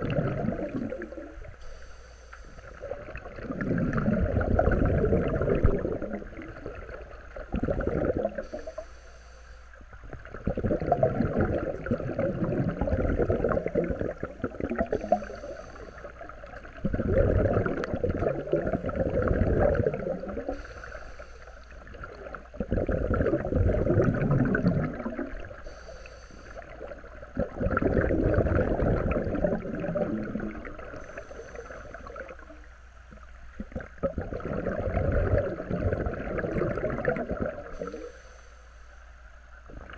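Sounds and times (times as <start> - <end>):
exhaled bubbles rushing: 0.0 - 1.6, 2.6 - 8.6, 10.0 - 20.7, 21.7 - 25.6, 26.6 - 38.1
regulator inhalation hiss: 1.5 - 2.8, 8.4 - 10.0, 14.9 - 16.3, 20.3 - 21.9, 25.5 - 26.9, 30.9 - 32.2, 37.7 - 39.2.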